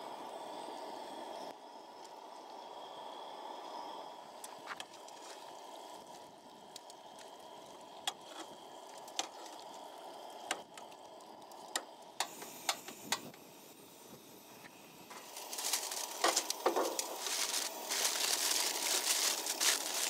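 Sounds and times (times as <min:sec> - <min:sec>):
food frying with pops: 0:04.4 - 0:13.4, 0:14.6 - 0:20.0
gas stove rushing: 0:06.7 - 0:20.0.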